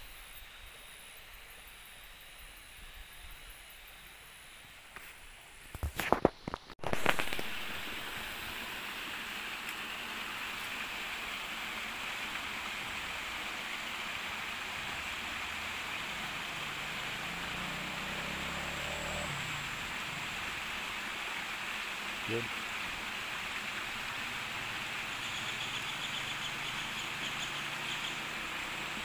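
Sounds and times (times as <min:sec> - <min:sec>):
creek water rushing: 0:06.8 - 0:29.0.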